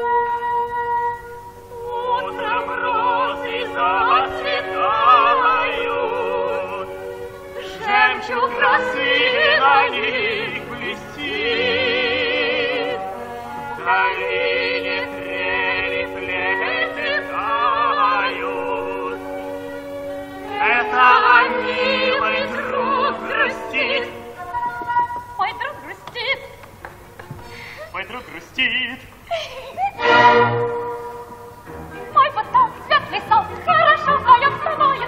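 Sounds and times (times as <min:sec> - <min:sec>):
singer with wide vibrato: 0:00.0 - 0:13.2, 0:13.8 - 0:19.6, 0:20.4 - 0:26.6, 0:31.9 - 0:35.0
orchestra accompaniment: 0:00.0 - 0:24.6, 0:30.0 - 0:35.0.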